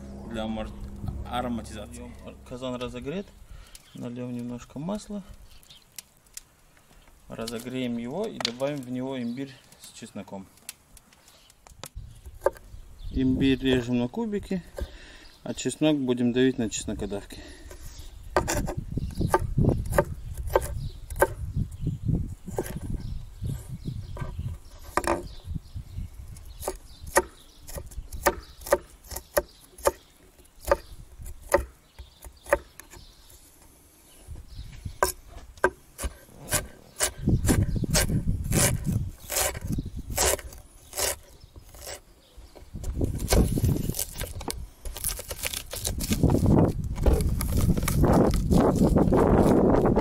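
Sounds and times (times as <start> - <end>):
low rumble: 0.0 - 3.6
cleaver chopping on wooden board: 26.6 - 30.0, 30.6 - 33.0.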